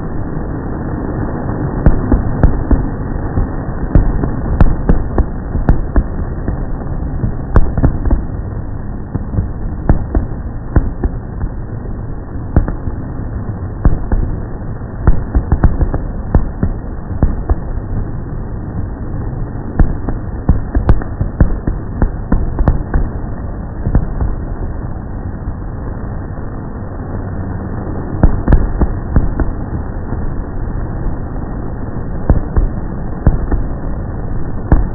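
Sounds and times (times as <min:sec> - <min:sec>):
steady low rumble: 0:00.0 - 0:34.9
fireworks bangs and pops: 0:01.8 - 0:11.7, 0:12.5 - 0:13.0, 0:13.8 - 0:14.4, 0:15.0 - 0:18.9, 0:19.7 - 0:24.6, 0:28.2 - 0:30.4, 0:32.3 - 0:33.8, 0:34.7 - 0:34.9.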